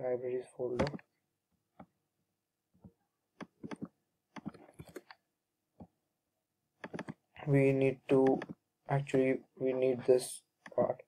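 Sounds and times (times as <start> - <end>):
mouse and keyboard clicks: 3.4 - 5.2, 6.8 - 7.2, 8.1 - 8.6.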